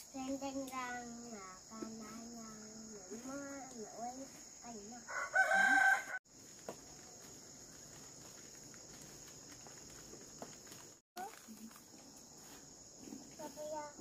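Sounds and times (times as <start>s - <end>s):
crickets chirring: 0.0s - 14.0s
rooster crowing: 5.1s - 6.2s.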